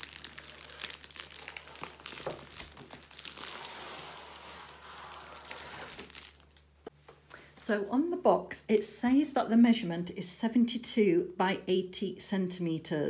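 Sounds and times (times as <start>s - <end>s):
plastic wrapping crinkling: 0.0s - 6.9s.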